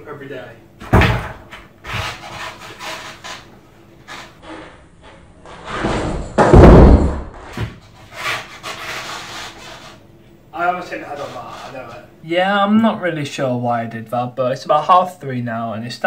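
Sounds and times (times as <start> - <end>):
skateboard landing thud: 5.8 - 7.8.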